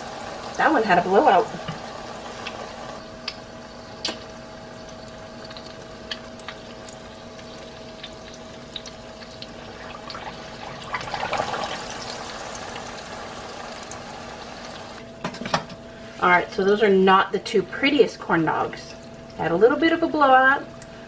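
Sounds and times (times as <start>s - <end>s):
food deep-frying in oil: 0.0s - 15.1s
oil crackling and popping: 1.7s - 15.0s.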